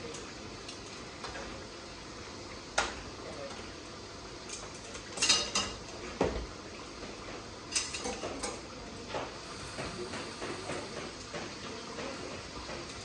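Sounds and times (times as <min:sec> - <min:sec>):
metal spoon clinking on pan: 0:07.7 - 0:08.6.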